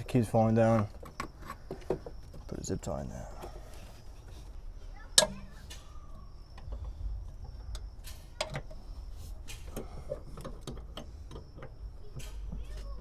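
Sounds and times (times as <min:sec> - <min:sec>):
small clicks and metal taps: 0:06.6 - 0:08.8, 0:09.4 - 0:12.9.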